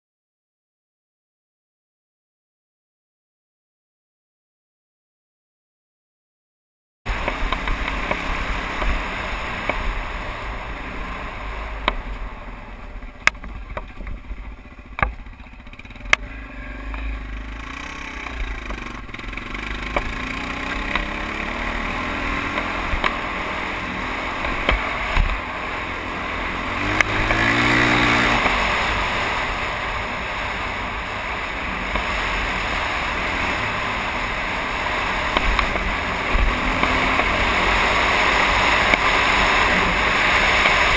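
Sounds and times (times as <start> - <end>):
motorbike engine revving: 7.1 - 40.9
sharp knocks over bumps: 18.2 - 21.3, 24.3 - 25.4.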